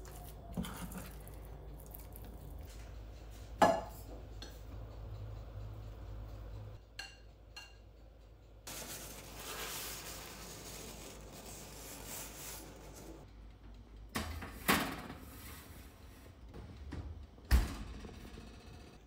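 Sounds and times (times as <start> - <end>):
paper towel rubbing metal tin: 8.7 - 13.2.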